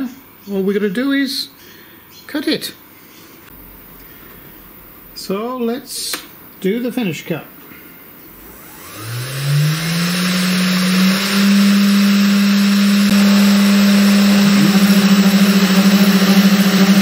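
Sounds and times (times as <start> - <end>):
click: 6.1 - 6.3
low hum: 8.3 - 17.0
spindle motor whine: 8.3 - 17.0.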